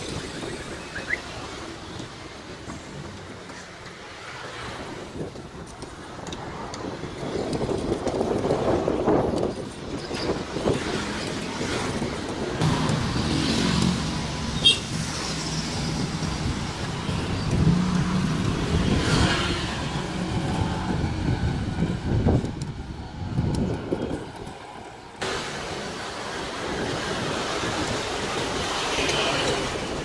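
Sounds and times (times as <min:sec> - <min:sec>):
motorbike and car engines passing: 0:10.3 - 0:24.3.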